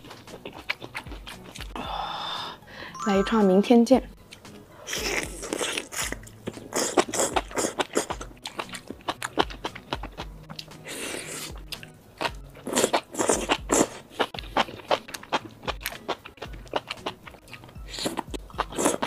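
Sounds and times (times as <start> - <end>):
chewing with wet clicks: 0.0 - 1.8, 4.3 - 19.0
slurping noodles: 4.8 - 10.2, 10.8 - 11.6, 12.2 - 16.2, 16.8 - 19.0.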